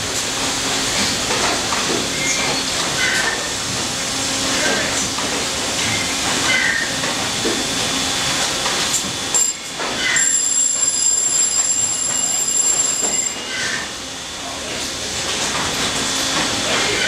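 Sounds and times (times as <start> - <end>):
machine squeaks: 9.3 - 13.9.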